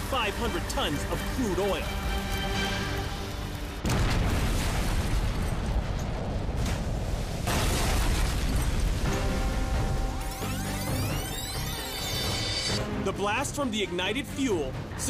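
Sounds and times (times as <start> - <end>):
dramatic background music: 0.0 - 15.0
explosion with long rumble: 3.8 - 10.0.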